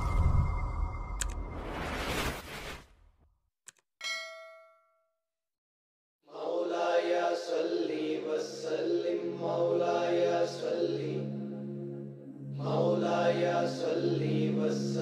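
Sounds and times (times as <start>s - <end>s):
bell-like ding: 4.0s - 5.1s
person chanting in long notes: 9.1s - 15.0s.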